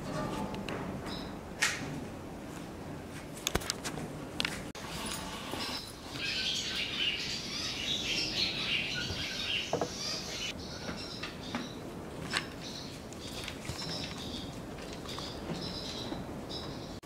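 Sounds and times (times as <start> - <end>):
swallows twittering: 5.6 - 11.8.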